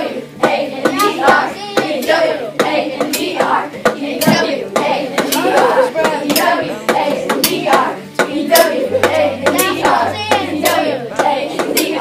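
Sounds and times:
children singing and calling out: 0.0 - 12.0.

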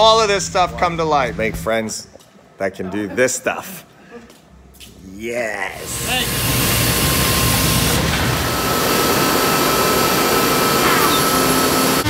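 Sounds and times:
woodworking machinery rushing: 5.8 - 12.0.

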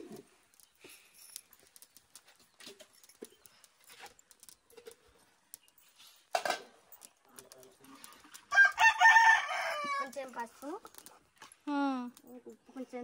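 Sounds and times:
rooster crowing: 8.5 - 10.1.

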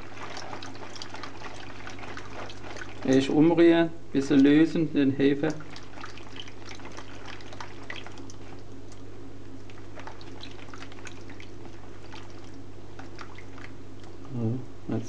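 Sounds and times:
hand stirring water in bowl: 0.0 - 14.3
steady low hum: 0.0 - 15.0.

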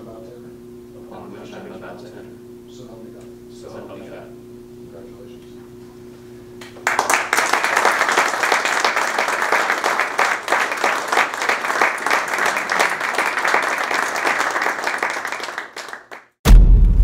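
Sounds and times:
audience applauding: 6.8 - 16.4.

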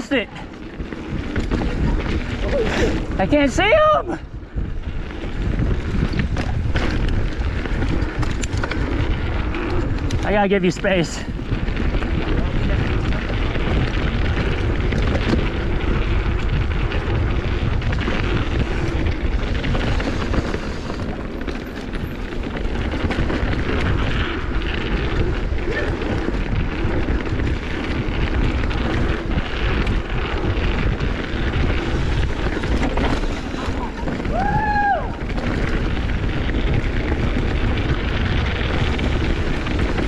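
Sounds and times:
tyres rolling over dirt trail: 0.0 - 40.0
wind buffeting microphone: 0.0 - 40.0.

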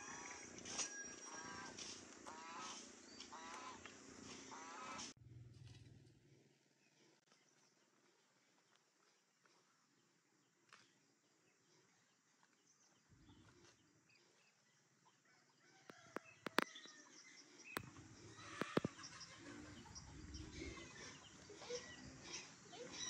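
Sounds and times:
faint hens clucking: 0.0 - 5.2, 15.1 - 23.0.

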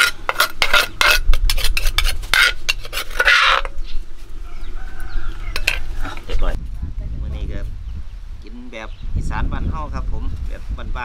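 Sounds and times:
metal spoon scraping dishes: 0.0 - 3.9, 5.5 - 6.3.

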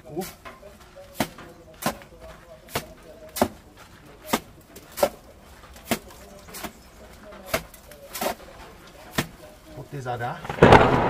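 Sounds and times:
mortar slapping onto wall: 1.1 - 2.1, 2.7 - 9.5.

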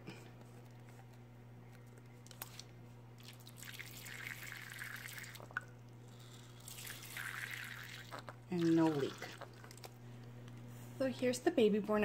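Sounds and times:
water stream hissing into bowl: 6.1 - 9.6.

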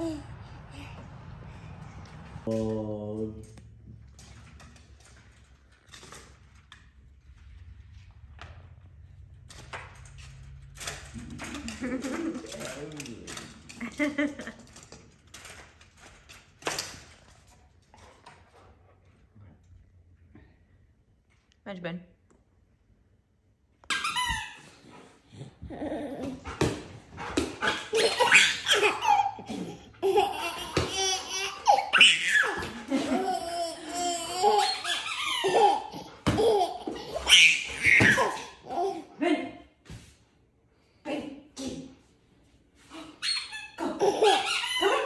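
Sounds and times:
person laughing: 11.2 - 12.8, 13.8 - 14.7.

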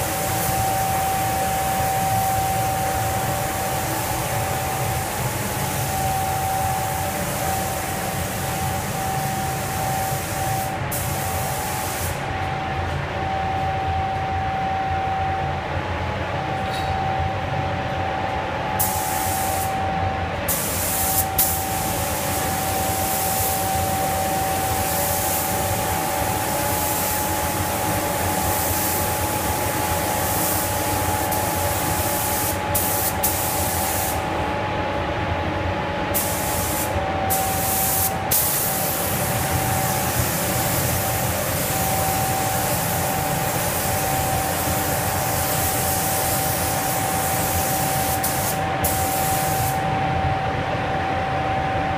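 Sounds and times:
paint spray gun hissing: 9.5 - 12.2, 20.5 - 23.7, 30.1 - 34.2, 36.2 - 49.8.

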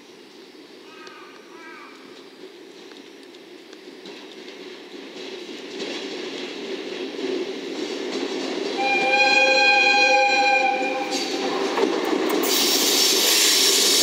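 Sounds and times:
locomotive running on rails: 2.0 - 14.0
locomotive horn blast: 8.8 - 11.4.

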